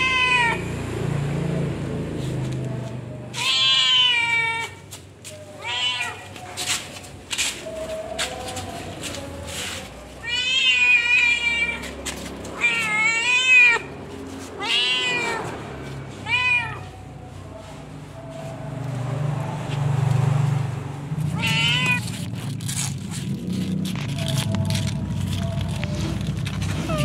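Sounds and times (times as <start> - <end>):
cat meowing: 0.0 - 0.8, 3.3 - 4.8, 5.5 - 6.4, 10.2 - 12.0, 12.6 - 13.9, 14.6 - 17.1, 21.2 - 22.3.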